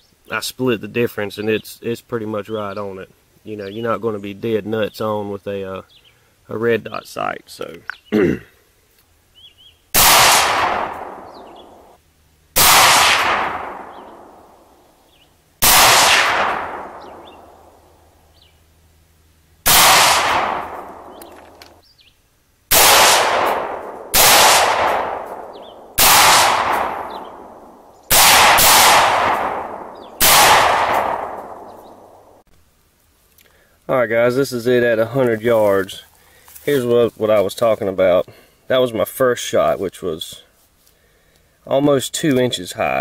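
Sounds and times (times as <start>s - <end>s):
rifle shots with echo: 10.0s - 11.9s, 12.6s - 14.6s, 15.6s - 17.8s, 19.6s - 21.6s, 22.7s - 32.3s.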